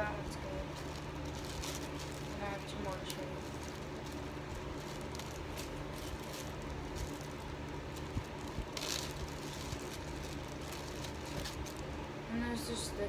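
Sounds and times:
plastic container rustle: 0.0s - 12.1s
slime handling noises: 0.0s - 12.1s.

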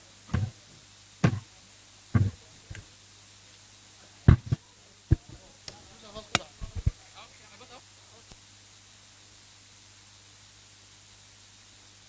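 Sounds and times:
faint low hum: 0.0s - 12.0s
knocks and thumps: 0.3s - 0.6s, 1.2s - 1.5s, 2.2s - 2.8s, 4.3s - 5.4s, 6.6s - 7.0s.

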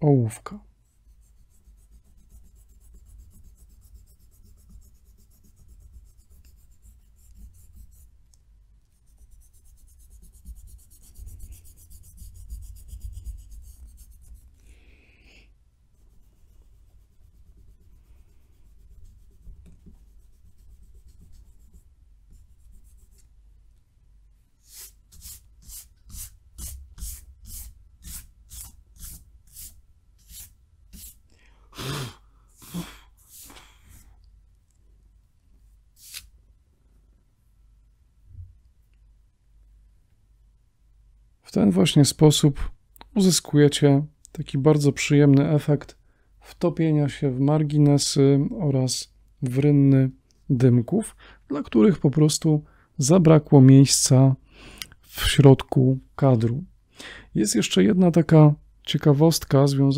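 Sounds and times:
eraser rubbing on paper: 0.9s - 8.2s, 9.0s - 14.6s, 15.9s - 23.2s, 24.6s - 31.2s, 33.2s - 34.1s, 36.0s - 36.3s.

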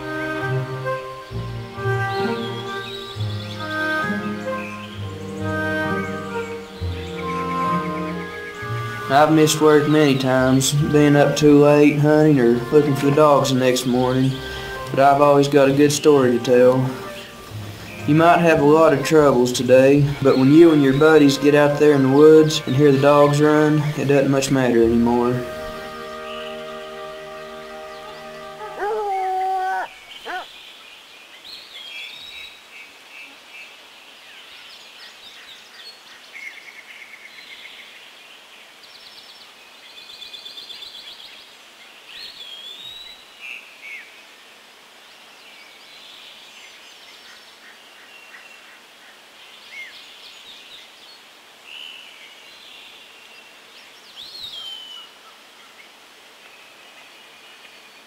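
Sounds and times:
faint outdoor hiss: 0.0s - 58.0s
songbirds chirping and trilling: 0.0s - 58.0s
dog howling: 27.9s - 30.5s.

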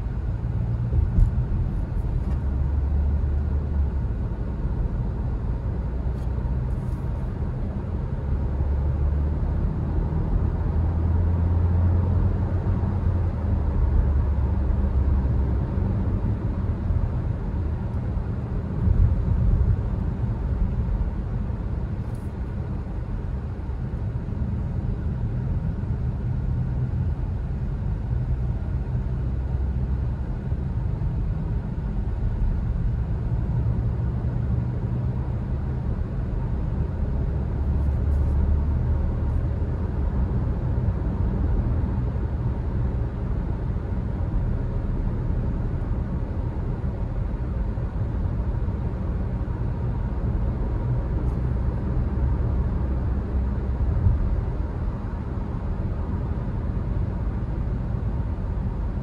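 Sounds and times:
car cabin road and engine rumble: 0.0s - 59.0s.

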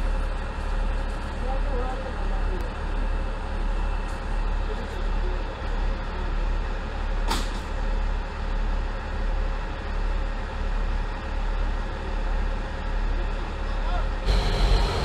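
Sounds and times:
diesel engines idling: 7.8s - 15.0s.

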